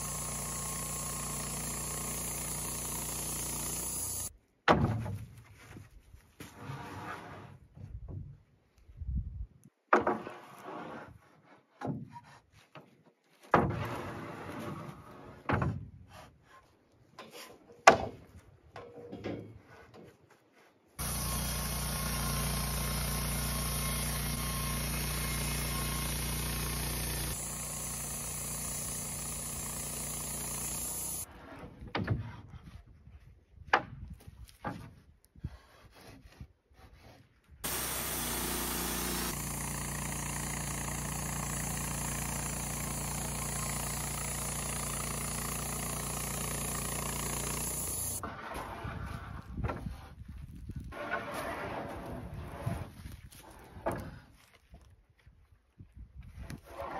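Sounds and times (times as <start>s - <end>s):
bandsaw mill cutting log: 0.0s - 4.3s, 21.0s - 31.3s, 37.0s - 48.9s.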